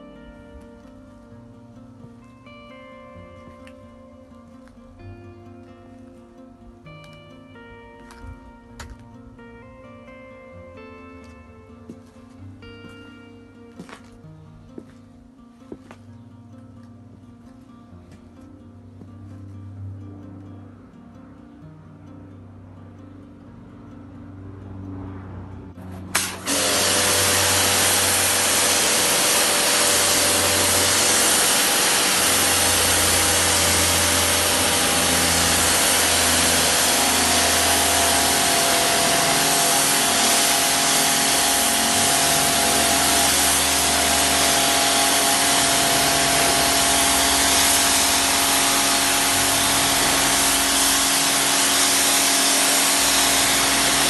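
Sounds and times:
motor and pump hum: 26.1s - 54.0s
water jet hissing on paving: 26.1s - 54.0s.

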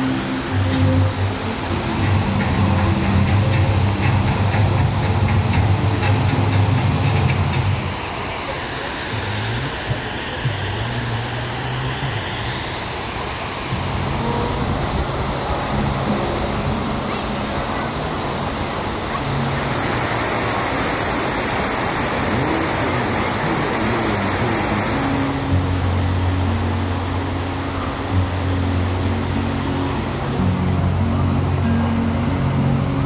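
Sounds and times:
background music with bass: 0.0s - 7.9s, 13.7s - 19.9s, 22.3s - 33.0s
hiss of water: 0.0s - 33.0s
water rushing: 0.0s - 33.0s.

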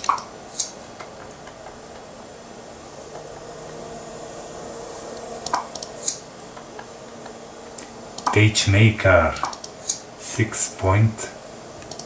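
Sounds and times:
computer cooling fan hum: 0.0s - 12.0s
mouse clicks: 5.4s - 6.2s.

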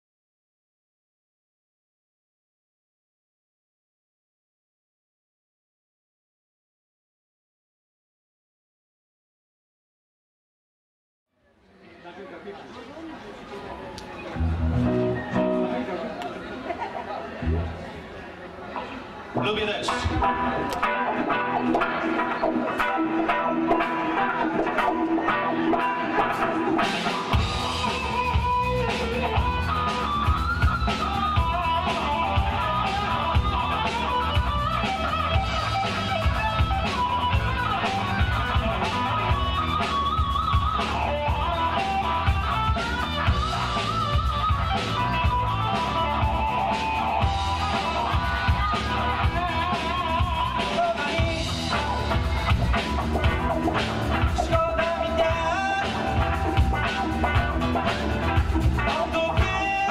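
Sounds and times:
electric guitar lines: 13.9s - 16.5s, 17.4s - 18.1s, 18.7s - 59.9s
drums: 14.0s - 15.8s, 19.3s - 59.9s
bass guitar: 14.2s - 16.2s, 17.4s - 18.0s, 19.2s - 59.9s.

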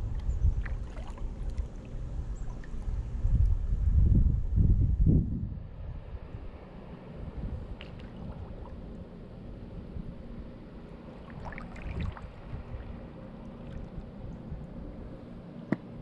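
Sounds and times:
wind rumble on microphone: 0.0s - 16.0s
paddle strokes splashing: 0.1s - 2.9s, 11.0s - 14.2s.

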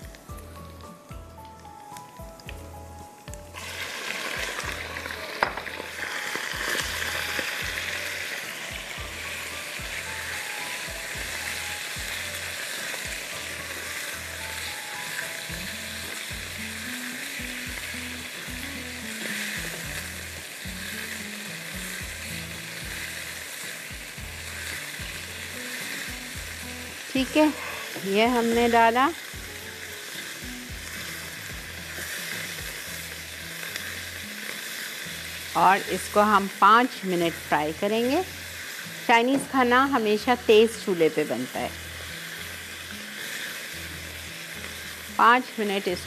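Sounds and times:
background music with low beat: 0.0s - 16.8s, 17.4s - 21.0s, 21.6s - 29.7s, 30.4s - 33.4s
meat sizzling in a wok: 0.0s - 46.0s
spatula stirring in a wok: 3.5s - 36.7s.

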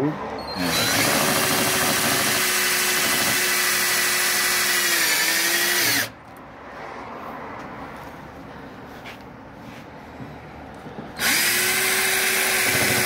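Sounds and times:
drill-driver driving a screw: 0.6s - 6.2s, 11.2s - 13.0s.

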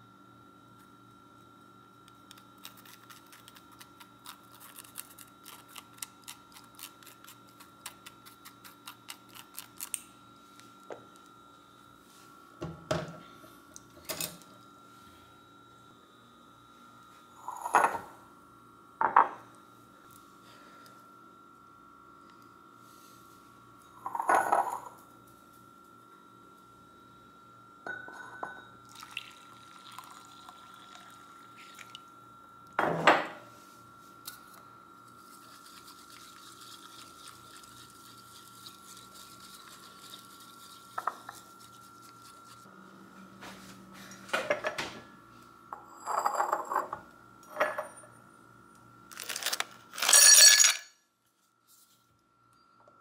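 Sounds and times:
steady hum: 0.0s - 51.0s
ceramic cups clinking: 27.9s - 29.1s, 50.0s - 50.9s
ice clattering in a glass: 49.2s - 50.8s.

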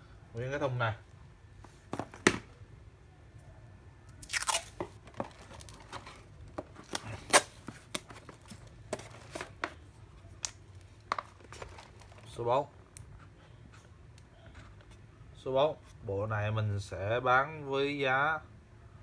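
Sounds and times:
cardboard crunching clicks and rustles: 1.7s - 2.5s, 4.2s - 12.4s.

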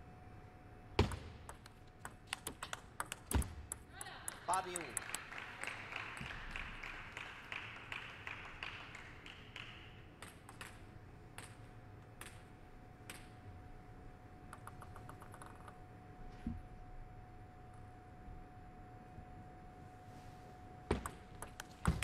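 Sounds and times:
table tennis ball taps: 1.0s - 5.1s
people clapping: 3.9s - 10.8s
faint steady tone: 15.8s - 20.9s.

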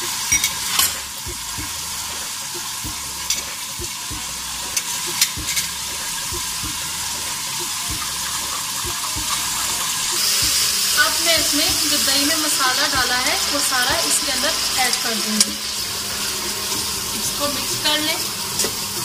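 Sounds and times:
oil sizzling in a pan: 0.0s - 19.0s
spoon clinks: 0.3s - 1.1s.

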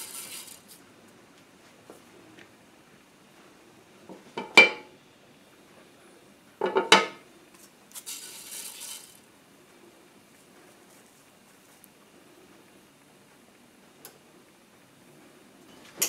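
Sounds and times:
seasoning pattering into a pan: 0.0s - 0.8s, 7.6s - 9.3s
utensil clattering in a pan: 4.4s - 4.9s, 6.6s - 7.2s, 8.0s - 9.2s.

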